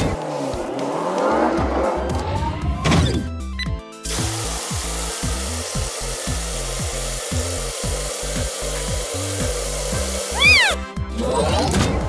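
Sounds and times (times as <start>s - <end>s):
music with falling bass notes: 0.0s - 12.0s
car wash spray hissing: 4.0s - 10.8s.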